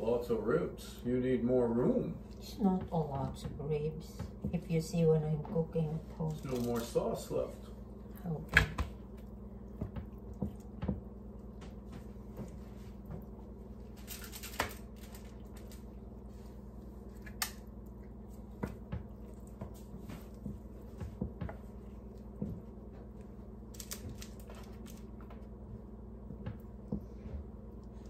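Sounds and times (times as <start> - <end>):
steady low hum: 0.0 - 28.0
foil tray clicks and crinkles: 14.0 - 15.9, 23.7 - 25.1.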